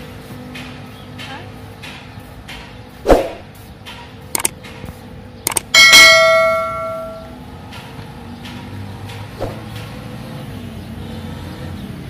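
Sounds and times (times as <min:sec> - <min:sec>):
road traffic rumble: 0:00.0 - 0:12.0
sharp click: 0:03.2 - 0:04.6, 0:05.4 - 0:05.7
bell-like metallic ringing: 0:05.7 - 0:07.4.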